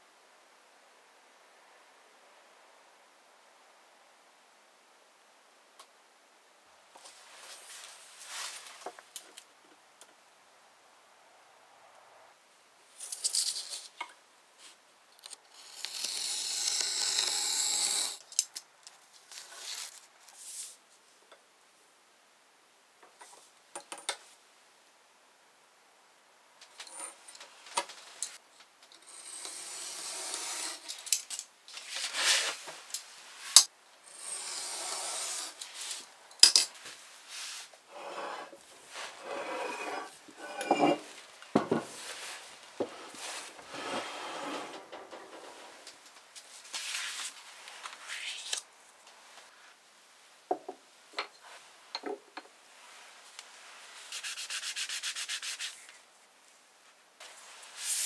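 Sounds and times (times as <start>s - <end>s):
stone scraping on wooden bench: 37.9s - 42.0s, 42.8s - 45.7s.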